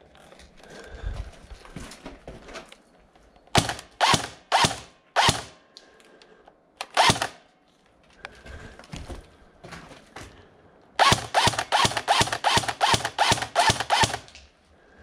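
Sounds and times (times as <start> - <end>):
airsoft gun firing bursts: 3.6 - 5.6, 6.8 - 7.4, 11.0 - 14.3.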